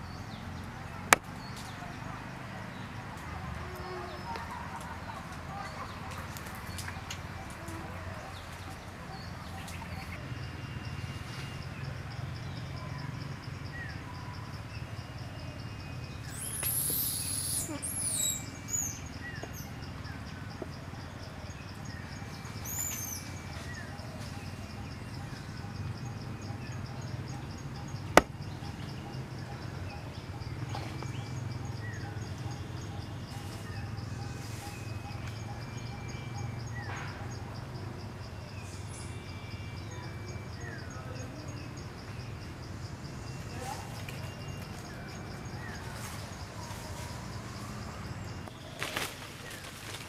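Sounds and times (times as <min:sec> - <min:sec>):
birds chirping and whistling: 0:16.0 - 0:20.8, 0:21.4 - 0:37.5
insect trilling: 0:16.2 - 0:19.3.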